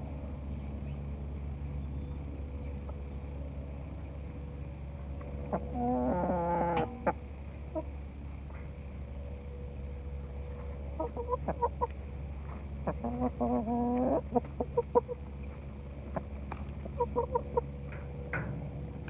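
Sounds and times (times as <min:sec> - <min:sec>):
hens clucking: 0:05.4 - 0:08.0, 0:10.6 - 0:18.3.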